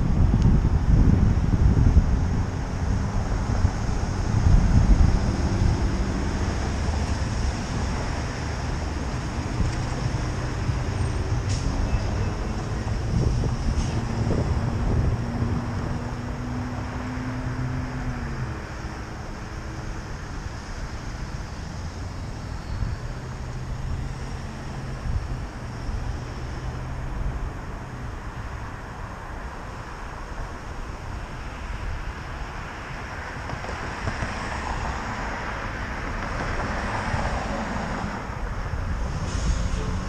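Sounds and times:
wind rumbling on microphone: 0.0s - 19.3s
passing vehicles: 0.0s - 40.0s
road traffic noise: 0.0s - 40.0s.

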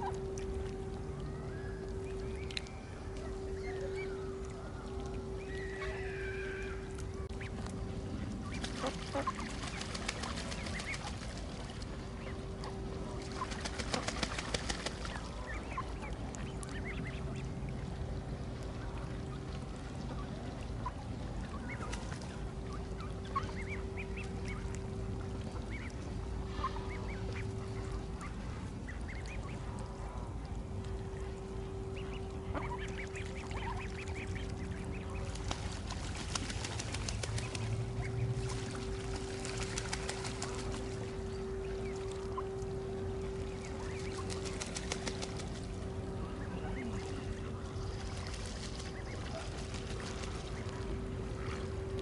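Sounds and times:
ducks quacking and honking: 5.6s - 11.3s, 31.9s - 35.5s
rapid rattling bird calls: 8.5s - 11.6s, 13.2s - 15.9s, 32.0s - 40.9s.

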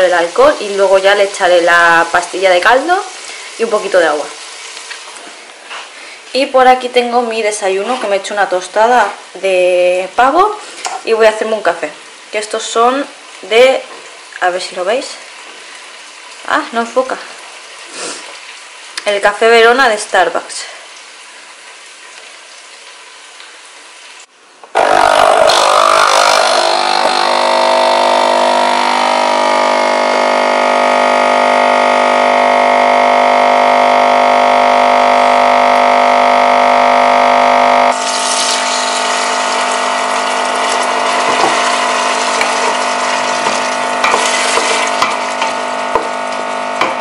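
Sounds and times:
vegetables sizzling in a pot: 0.0s - 47.0s
espresso machine pump humming: 24.8s - 47.0s
espresso pouring into cup: 37.9s - 46.4s.

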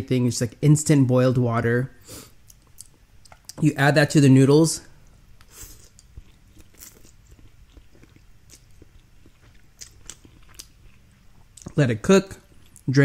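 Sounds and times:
chewing with wet mouth clicks: 2.4s - 3.6s, 5.1s - 11.8s.

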